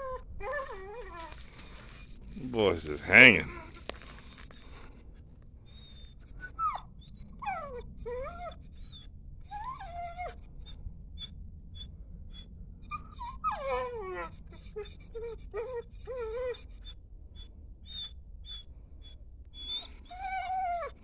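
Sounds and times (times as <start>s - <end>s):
dog high squeaks: 0.0s - 2.1s, 5.8s - 10.4s, 12.9s - 17.0s, 19.6s - 21.0s
dog whining: 0.0s - 3.9s, 5.7s - 10.4s, 11.2s - 21.0s.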